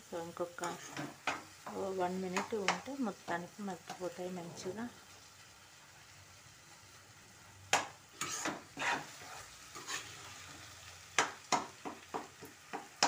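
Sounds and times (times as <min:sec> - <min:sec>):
faint sizzle: 0:00.0 - 0:13.0
spatula scraping a pan: 0:00.5 - 0:03.0, 0:07.8 - 0:13.0.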